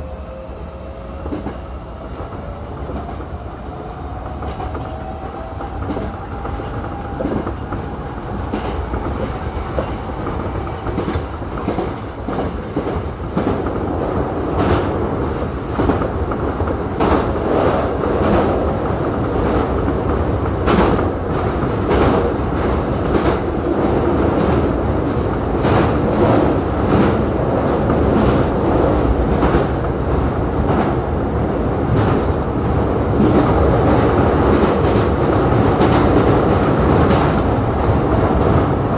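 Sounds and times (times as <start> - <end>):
train wheels clicking over rail joints: 1.2 - 31.1.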